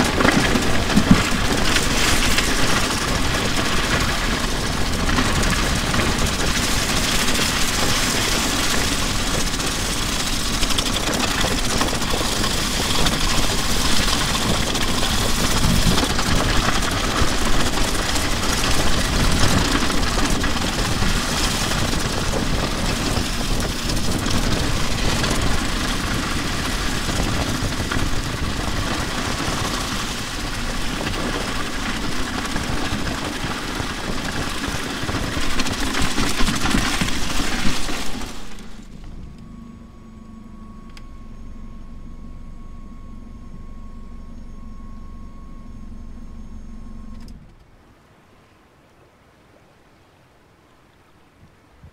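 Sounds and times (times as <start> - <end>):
drum shells dragged over asphalt: 0.0 - 39.3.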